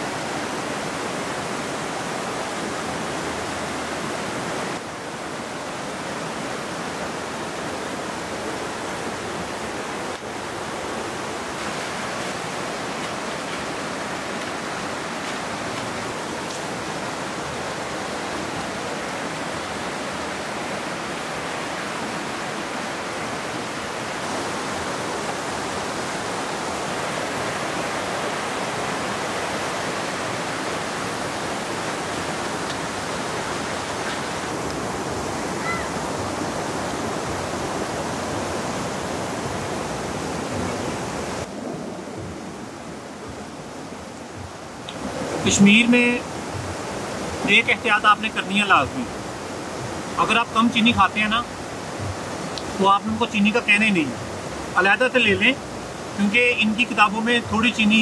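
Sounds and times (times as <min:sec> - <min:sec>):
river rushing over rocks: 0:00.0 - 0:58.0.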